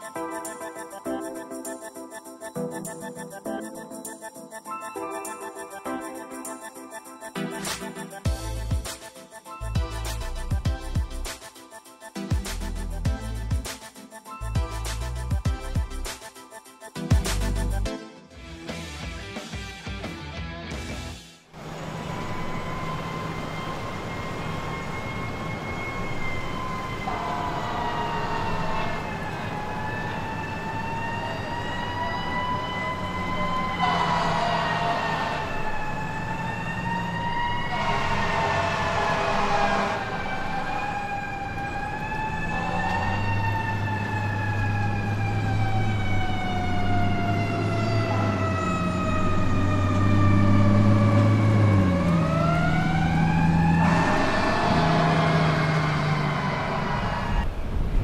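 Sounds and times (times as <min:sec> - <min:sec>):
siren wailing: 0:21.6 - 0:57.6
low engine drone: 0:21.6 - 0:57.8.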